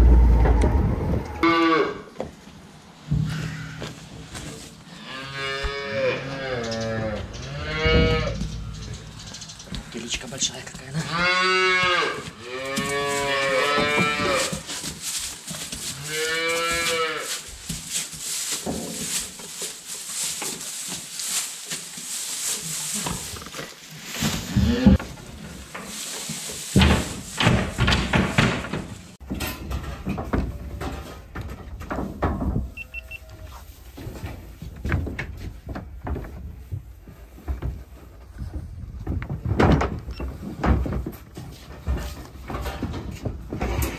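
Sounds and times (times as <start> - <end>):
cattle mooing: 1.4 - 2.1, 4.9 - 9.1, 11.0 - 14.5
rustling: 3.3 - 29.2
knocks and clatter: 6.8 - 10.8, 24.2 - 32.8, 33.9 - 43.9.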